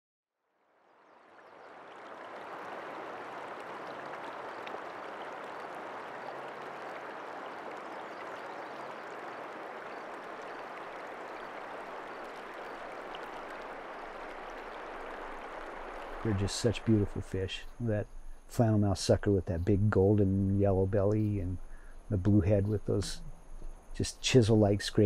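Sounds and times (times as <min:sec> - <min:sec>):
river water rushing: 0:01.4 - 0:17.1
faint ticks: 0:03.8 - 0:05.8, 0:21.0 - 0:24.4.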